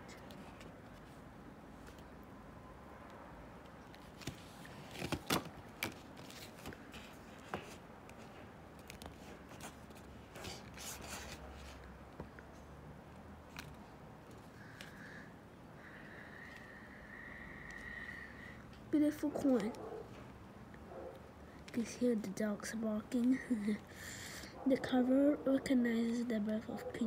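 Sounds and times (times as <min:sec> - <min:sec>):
card and plastic rustling: 0:03.9 - 0:11.9.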